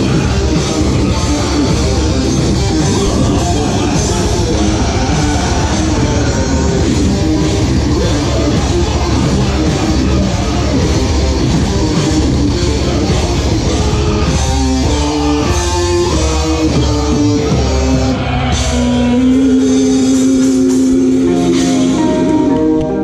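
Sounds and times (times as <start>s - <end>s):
live rock band playing: 0.0s - 23.0s.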